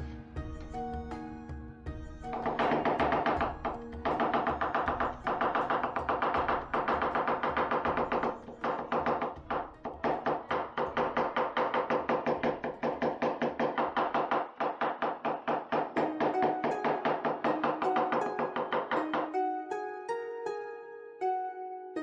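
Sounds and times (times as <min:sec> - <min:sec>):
background music: 0:00.0 - 0:22.0
cleaver chopping on wooden board: 0:02.3 - 0:19.4.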